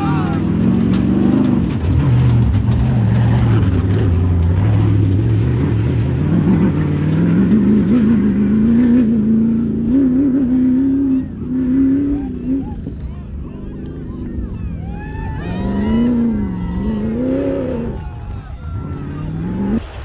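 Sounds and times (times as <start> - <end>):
engine revving: 0.0 - 20.0.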